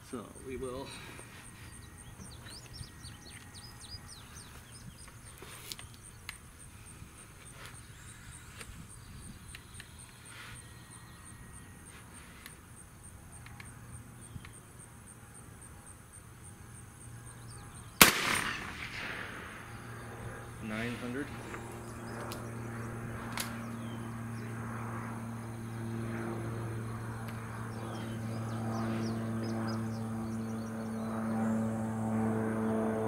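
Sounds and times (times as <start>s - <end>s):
rifle shot: 18.0s - 19.9s.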